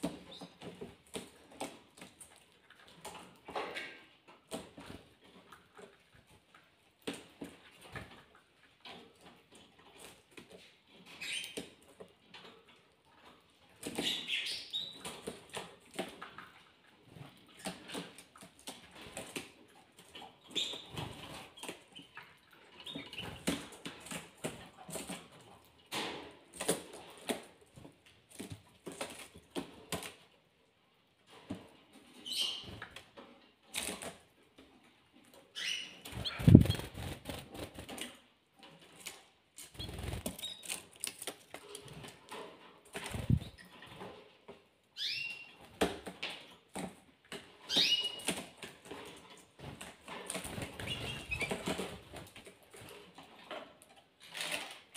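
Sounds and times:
birds flapping wings: 36.1s - 38.1s, 39.8s - 40.4s.

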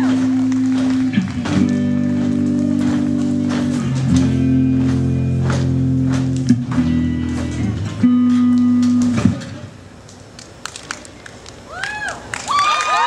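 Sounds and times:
guitar and bass chords: 0.0s - 10.0s.

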